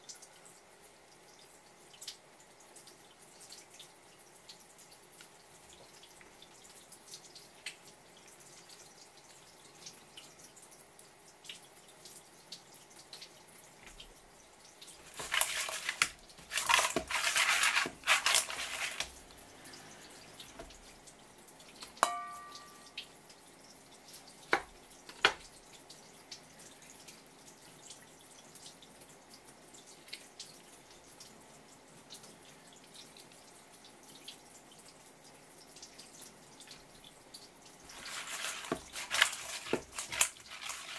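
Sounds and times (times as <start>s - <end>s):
wet rustling and squelching: 14.9s - 21.0s, 37.8s - 40.9s
steel bowl knock ringing: 22.0s - 23.0s.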